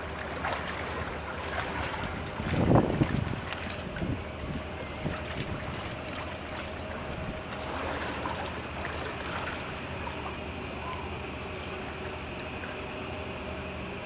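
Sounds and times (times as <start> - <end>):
small waves lapping: 0.0 - 13.8
faint steady hum: 0.0 - 14.0
wind noise: 2.1 - 5.9.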